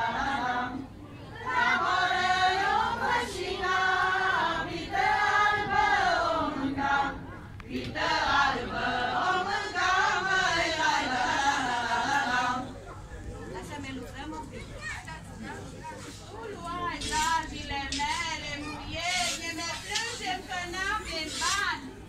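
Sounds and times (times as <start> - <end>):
women's choir singing: 0.0 - 12.9, 16.8 - 21.0.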